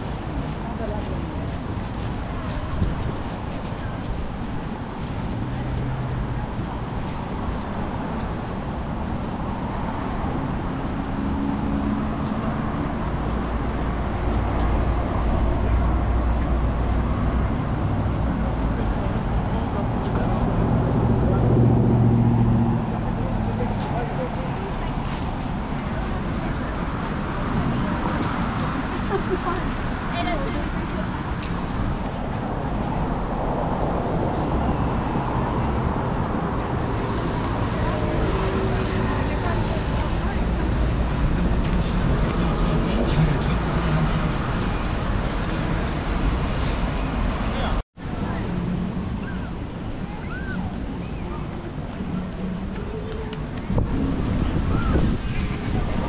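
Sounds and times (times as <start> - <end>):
city road traffic: 0.0 - 56.0
vehicles passing: 0.0 - 56.0.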